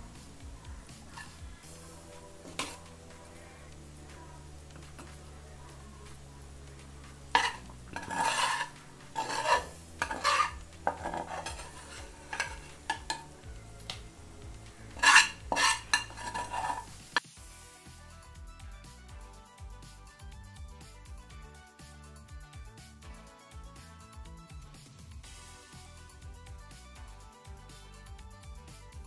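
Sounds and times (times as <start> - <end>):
background music: 0.0 - 29.0
metal ladle scraping pot: 0.9 - 5.4, 7.0 - 17.2.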